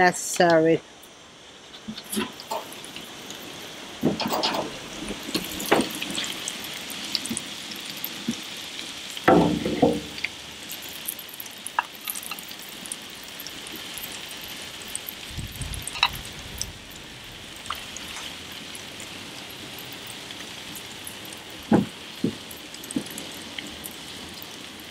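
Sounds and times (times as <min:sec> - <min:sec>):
tongs clicking and scraping: 0:01.7 - 0:03.4, 0:10.2 - 0:12.7, 0:15.6 - 0:16.3.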